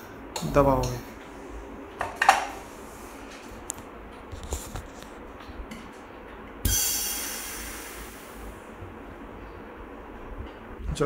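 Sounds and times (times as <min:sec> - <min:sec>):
air hissing into suction tube: 0:06.7 - 0:08.6
electric suction machine running: 0:06.7 - 0:08.6.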